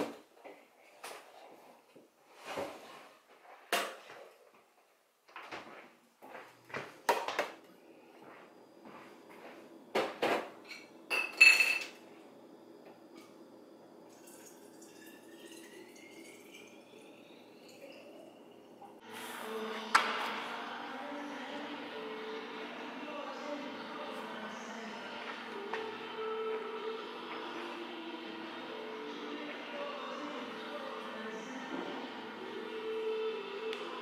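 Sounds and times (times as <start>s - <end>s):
water pouring into bottle: 14.1s - 16.8s.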